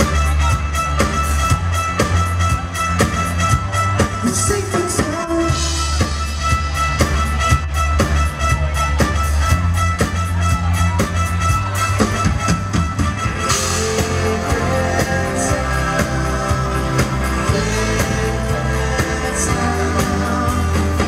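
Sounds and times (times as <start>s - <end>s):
live rock band playing: 0.0s - 21.0s.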